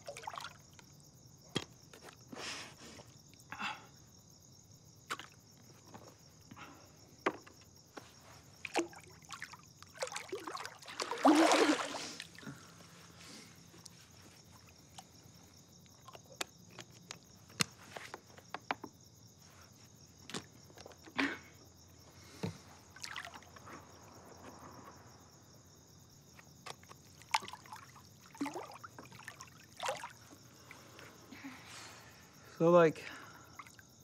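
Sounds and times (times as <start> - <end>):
small splashes: 0.0 - 0.9, 8.6 - 12.8, 22.9 - 24.1, 26.6 - 31.0, 33.4 - 33.8
water lapping in a pool: 0.0 - 1.0, 8.2 - 17.4, 22.8 - 24.2, 26.4 - 31.3, 33.2 - 34.0
crickets chirping: 0.0 - 34.0.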